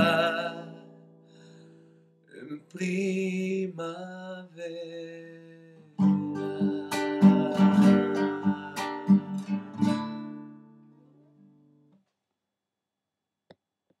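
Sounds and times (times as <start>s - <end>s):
acoustic guitar strumming: 0.0s - 2.1s, 2.8s - 11.9s.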